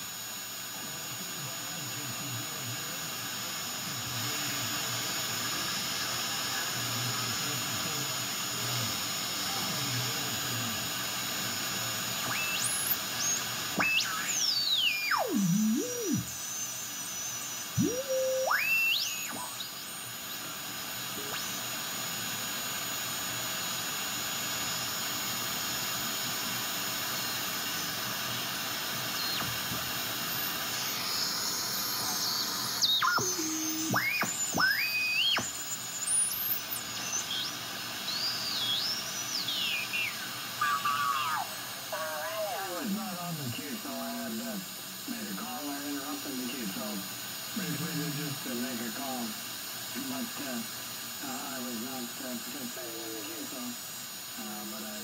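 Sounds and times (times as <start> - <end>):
radio receiver hiss: 0.0 - 55.0
heterodyne whistles gliding in pitch: 12.3 - 20.1, 31.0 - 41.5.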